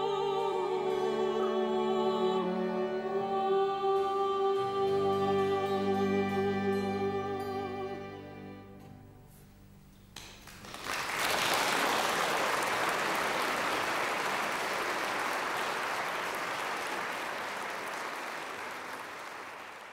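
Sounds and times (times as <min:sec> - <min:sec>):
two singers holding a chord: 0:00.0 - 0:08.8
string ensemble chord: 0:00.0 - 0:09.3
audience applause: 0:10.4 - 0:19.9.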